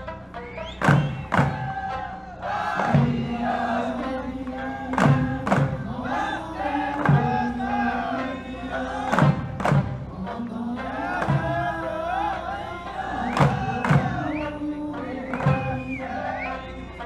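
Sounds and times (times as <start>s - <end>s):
heavy drum strikes: 0.6s - 10.4s, 11.1s - 11.9s, 13.2s - 14.3s
person singing long notes: 1.6s - 17.0s.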